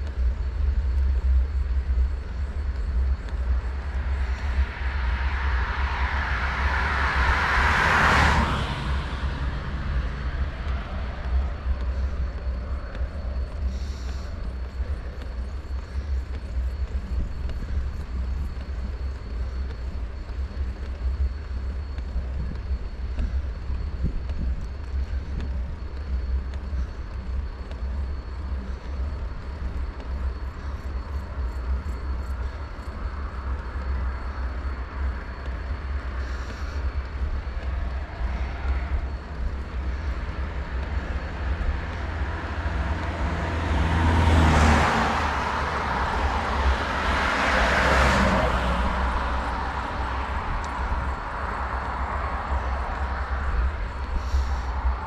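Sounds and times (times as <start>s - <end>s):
wind rumble on microphone: 0.0s - 55.0s
motor vehicle passing: 3.3s - 21.2s, 31.7s - 55.0s.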